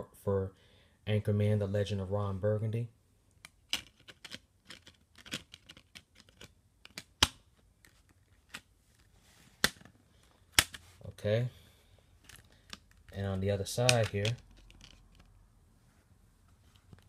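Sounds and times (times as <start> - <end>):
sharp plastic snaps: 3.3 - 8.7, 10.5 - 10.8, 13.8 - 15.3.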